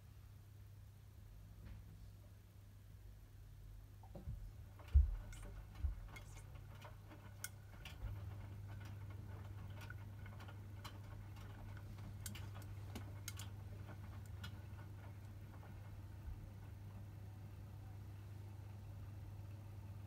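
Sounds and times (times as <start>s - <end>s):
washing machine drum humming: 4.0s - 20.0s.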